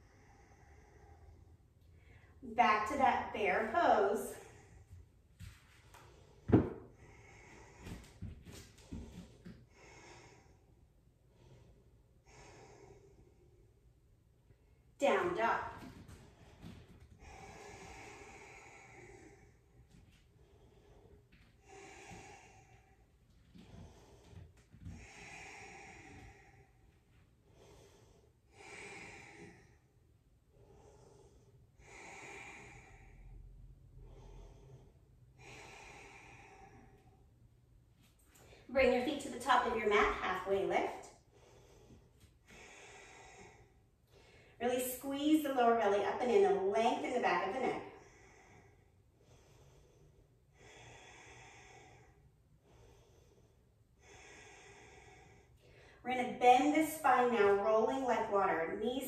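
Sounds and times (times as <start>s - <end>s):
person breathing slowly: 0.0s - 2.4s, 3.9s - 45.6s, 46.5s - 57.7s.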